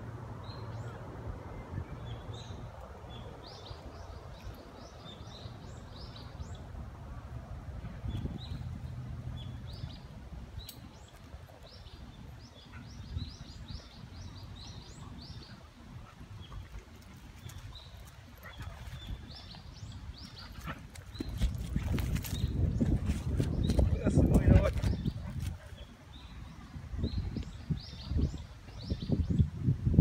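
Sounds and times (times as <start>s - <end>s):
small birds chirping: 8.0s - 29.5s.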